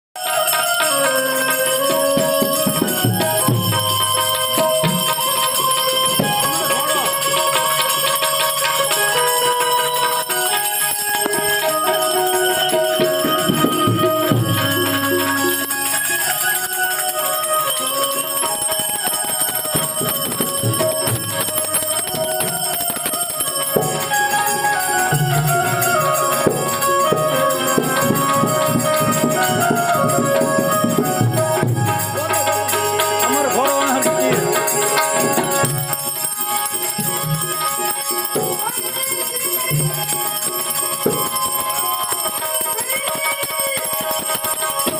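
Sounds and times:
harmonium playing: 0:00.2 - 0:44.9
jingling percussion: 0:00.2 - 0:44.9.

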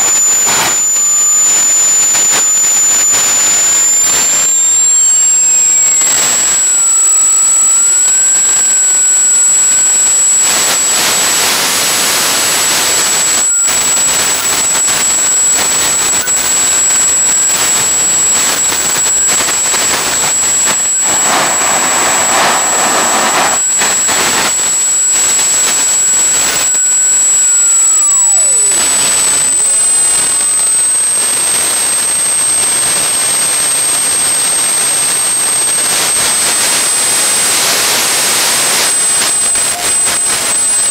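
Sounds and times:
jet engine roaring: 0:20.6 - 0:25.6.

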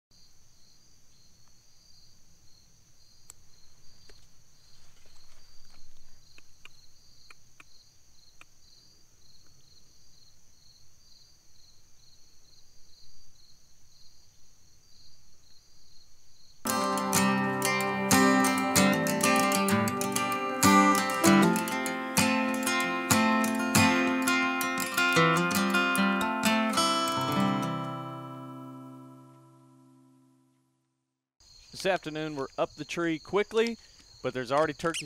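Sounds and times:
crickets chirping: 0:00.1 - 0:29.6, 0:31.4 - 0:35.0
insects buzzing: 0:00.2 - 0:29.2, 0:31.4 - 0:35.0.

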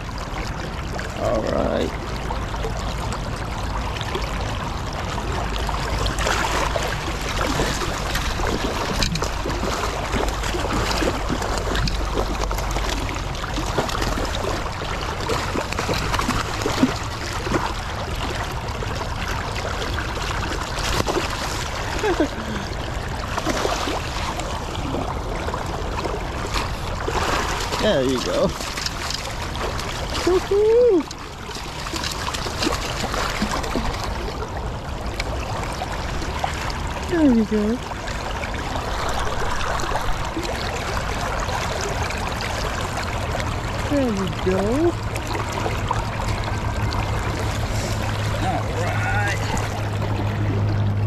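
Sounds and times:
river water rushing: 0:00.0 - 0:51.0
fish splashing at surface: 0:05.2 - 0:36.9.

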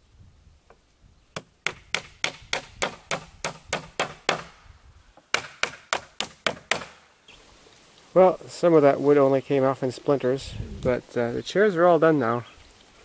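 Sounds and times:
hammer striking wood: 0:01.4 - 0:04.6, 0:05.3 - 0:07.0.

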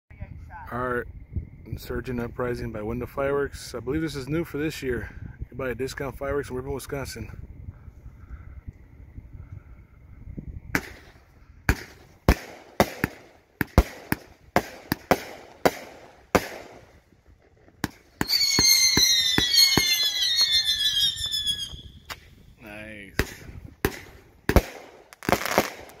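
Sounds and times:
whistling fireworks: 0:10.1 - 0:26.0
fireworks bangs: 0:10.7 - 0:26.0
fireworks crackling: 0:10.8 - 0:26.0.

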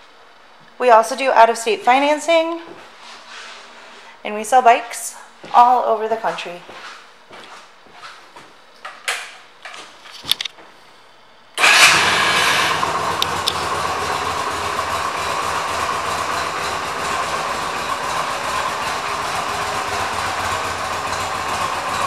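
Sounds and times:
motorcycle engine starting and idling: 0:11.6 - 0:22.0.

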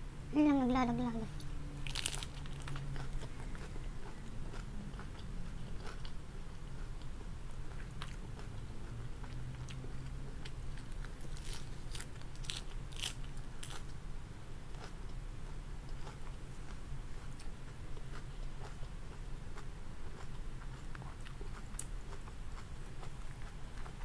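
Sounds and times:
steady low hum: 0:00.0 - 0:24.0
crunching lettuce: 0:01.8 - 0:06.2, 0:09.2 - 0:14.0.

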